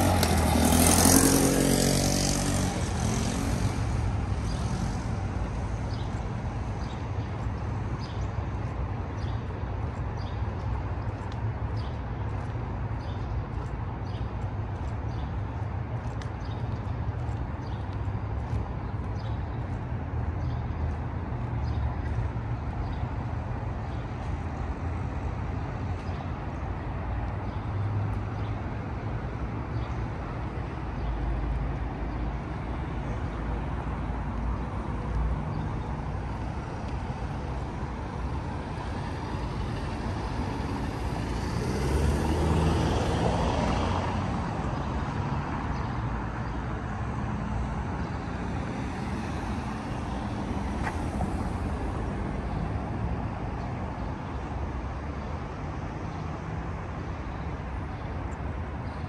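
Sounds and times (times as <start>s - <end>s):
vehicle passing close: 0.0s - 5.4s
passing cars: 0.0s - 59.0s.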